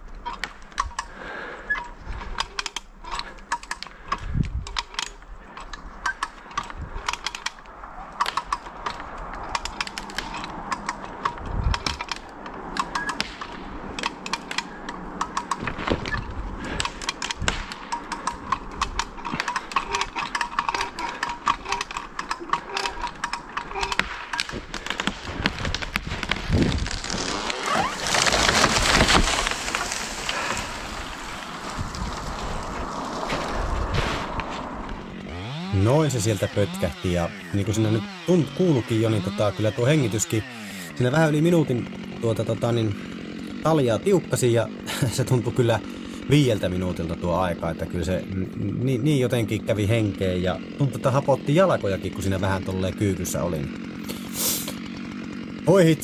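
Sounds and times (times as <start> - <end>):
person breathing hard: 1.0 - 2.4, 30.1 - 31.2, 40.5 - 41.0, 45.9 - 46.3, 54.0 - 54.8
rope tackle clicking and knocking: 1.8 - 27.3
tree falling with rushing swell: 24.1 - 35.6.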